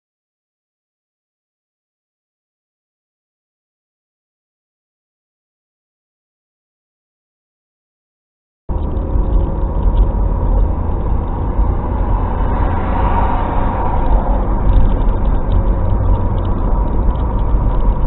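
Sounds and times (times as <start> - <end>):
vehicle road and engine rumble: 8.7 - 18.0.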